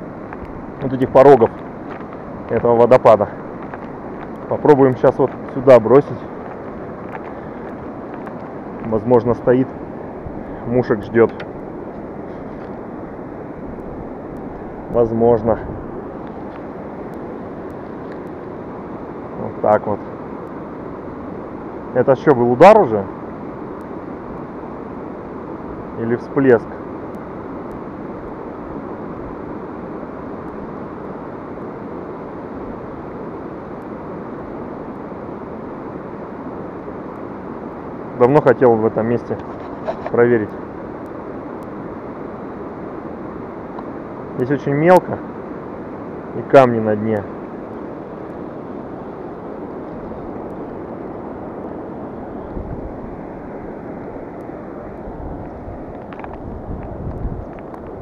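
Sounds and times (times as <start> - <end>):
wind buffeting microphone: 0.0 - 18.2, 47.8 - 58.0
river running over rapids: 0.0 - 58.0.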